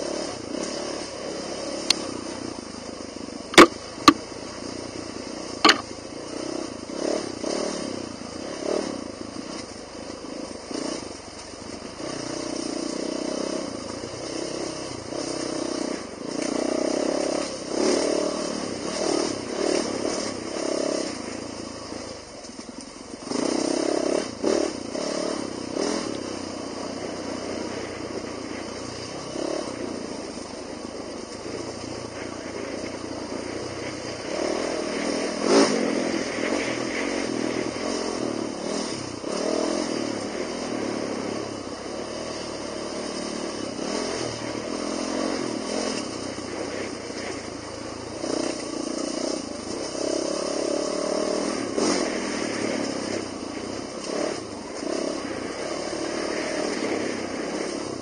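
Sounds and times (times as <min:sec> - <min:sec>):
dirt bike engine revving: 0:00.0 - 0:11.2, 0:11.8 - 0:58.0
sharp knock: 0:03.6 - 0:04.2, 0:05.6 - 0:05.8.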